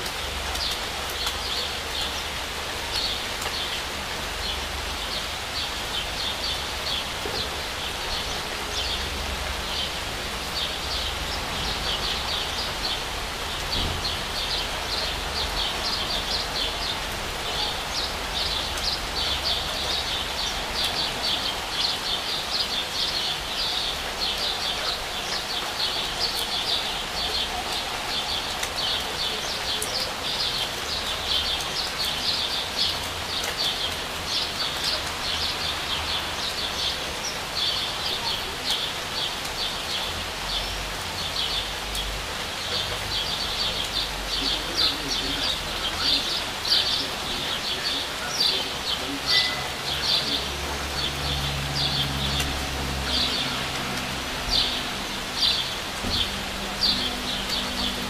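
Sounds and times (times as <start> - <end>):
steady rain falling: 0.0 - 58.0
bird chirping: 42.6 - 52.4.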